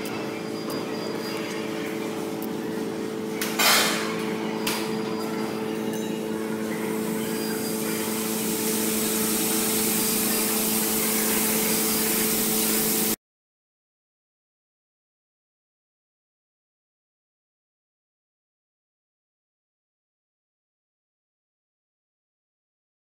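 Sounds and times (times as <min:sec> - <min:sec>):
machine hum: 0:00.0 - 0:13.2
continuous smoke hiss: 0:07.0 - 0:13.2.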